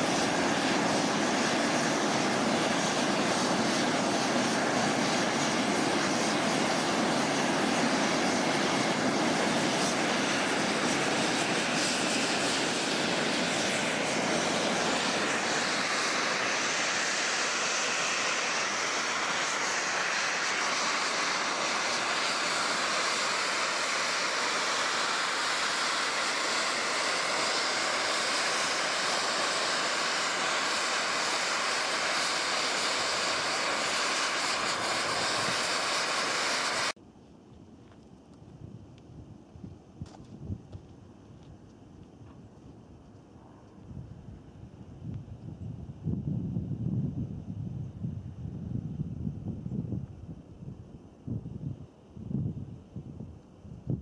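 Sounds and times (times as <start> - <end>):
fumarole venting steam hiss: 0.0 - 37.0.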